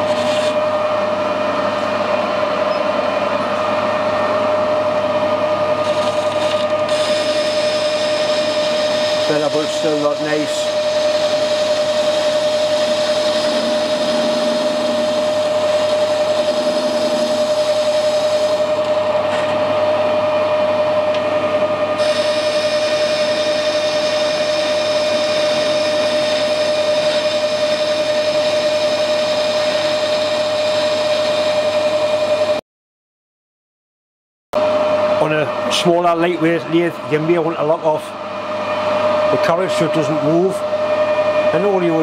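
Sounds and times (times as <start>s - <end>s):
tool cutting metal bar: 0.0s - 0.6s, 5.8s - 19.6s
metal lathe whining: 0.0s - 32.6s, 34.6s - 42.0s.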